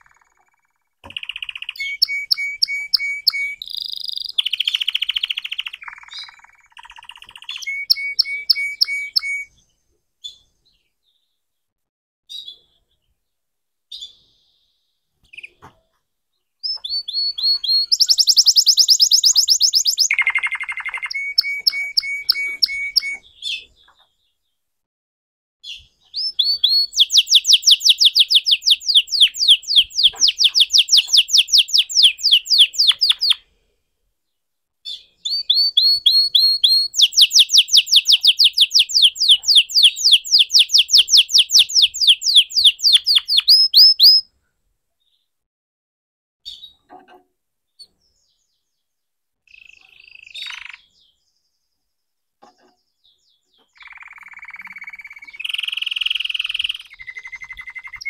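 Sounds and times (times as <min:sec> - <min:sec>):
canary singing trills: 0:00.0 - 0:09.6, 0:16.6 - 0:24.4, 0:25.7 - 0:33.4, 0:34.9 - 0:44.3, 0:49.5 - 0:51.5, 0:52.5 - 0:58.0.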